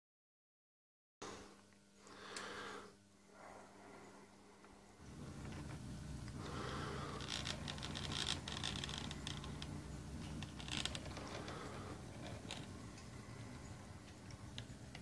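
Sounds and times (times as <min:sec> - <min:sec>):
electric motor humming: 0:05.0 - 0:15.0.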